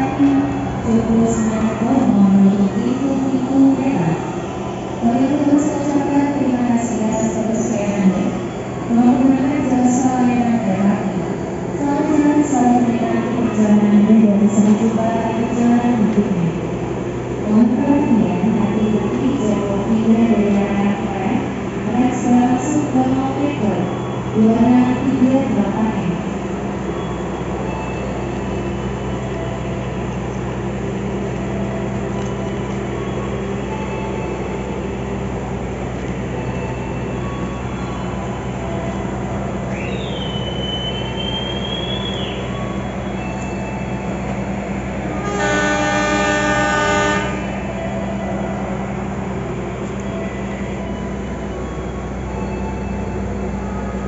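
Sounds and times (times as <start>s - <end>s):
diesel train engine idling: 16.0s - 54.0s
train horn blast: 45.0s - 47.7s.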